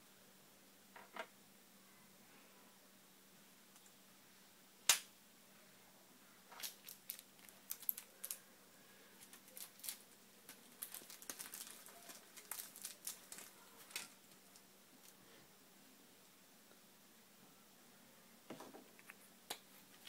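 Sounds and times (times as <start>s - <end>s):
pouch clicking and rustling: 10.8s - 14.2s.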